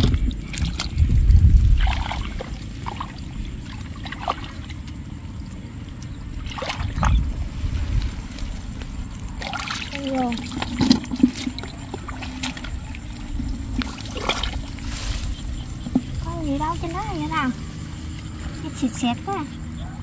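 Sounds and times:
short splashes: 0.0s - 5.0s, 6.3s - 8.6s, 9.4s - 15.4s
hands sloshing in muddy water: 0.0s - 18.5s.

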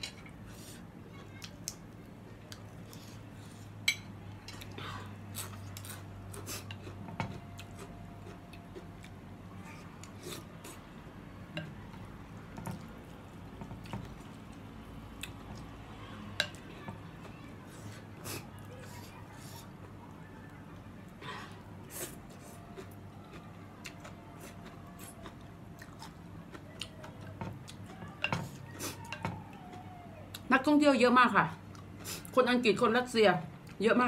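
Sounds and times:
faint low hum: 0.0s - 34.0s
eating sounds: 21.2s - 30.5s.

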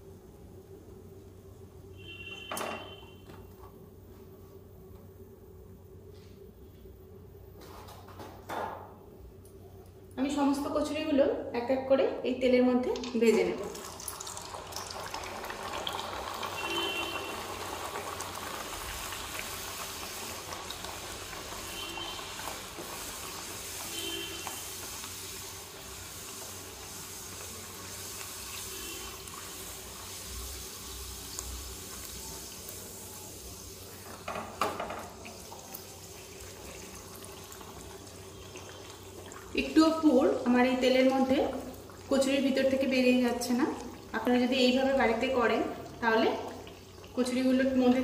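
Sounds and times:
dough sizzling in hot oil: 2.0s - 3.2s, 12.8s - 48.0s.

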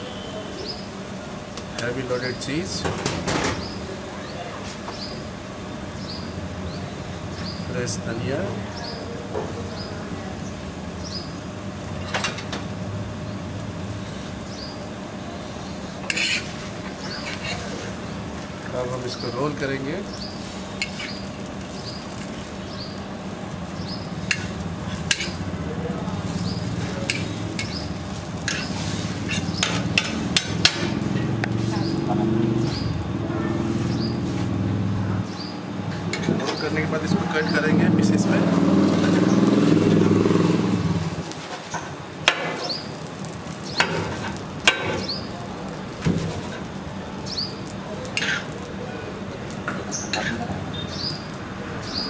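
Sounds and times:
metal spatula scraping griddle: 16.0s - 18.1s, 20.4s - 22.3s, 24.2s - 25.5s, 26.2s - 32.9s, 35.9s - 40.5s, 43.7s - 45.3s, 46.2s - 46.7s, 48.1s - 48.6s, 49.9s - 50.5s
metal blade striking iron griddle: 16.1s - 16.6s, 20.8s - 21.2s, 24.2s - 25.4s, 26.6s - 31.9s, 42.2s - 42.8s, 43.7s - 45.3s.

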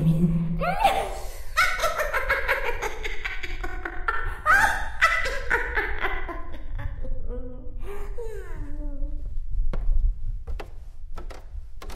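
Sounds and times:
woman cackling witch laugh: 1.6s - 7.4s.

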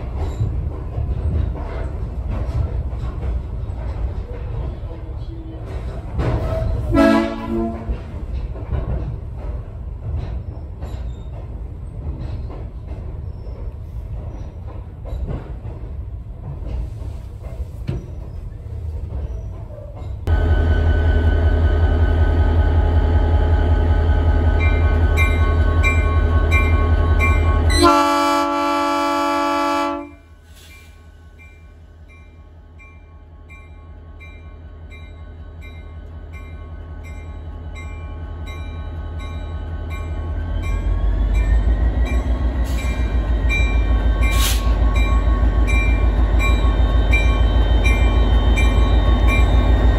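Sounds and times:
locomotive air horn blast: 6.9s - 8.0s, 27.7s - 30.2s
locomotive bell ringing: 24.6s - 27.9s, 31.4s - 49.9s.

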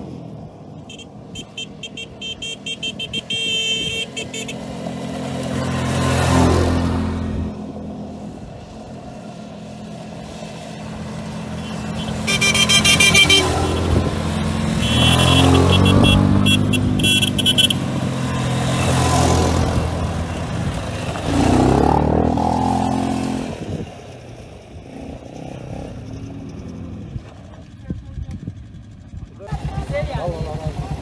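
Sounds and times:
quad bike engines: 0.0s - 31.0s
horn honking: 0.8s - 4.9s, 11.6s - 14.1s, 14.7s - 17.9s.

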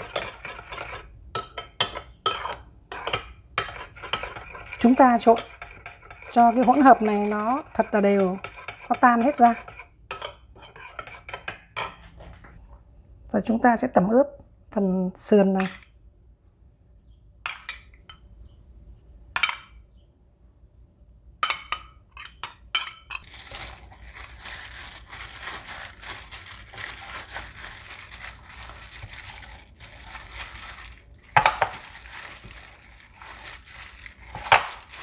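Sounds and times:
metal spoon scraping ceramic bowl: 0.0s - 12.0s
plastic glove crinkling: 23.2s - 35.0s.

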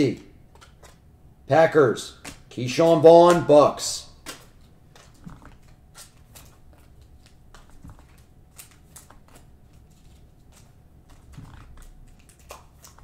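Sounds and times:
trading cards flicking: 4.2s - 13.0s.

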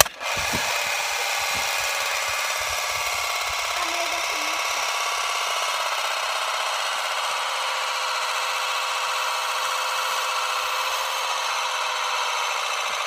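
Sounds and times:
magnetic spheres buzzing rattle: 0.0s - 7.1s.

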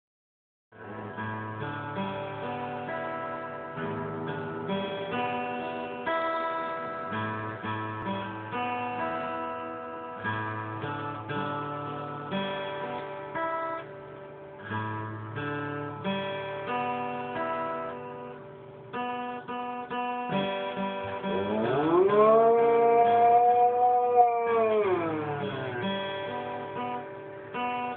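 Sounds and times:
guitar playing: 0.8s - 27.9s
dog howling: 21.2s - 26.1s.

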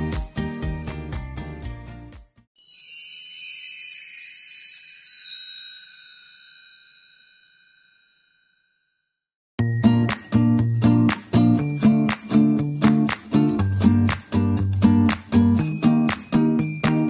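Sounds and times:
bright high chime: 2.6s - 12.8s, 15.5s - 17.0s.

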